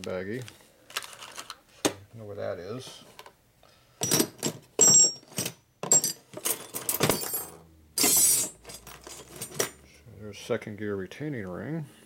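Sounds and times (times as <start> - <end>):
plastic bag rustling: 0.3 - 1.6
small metal parts clinking: 4.0 - 9.8.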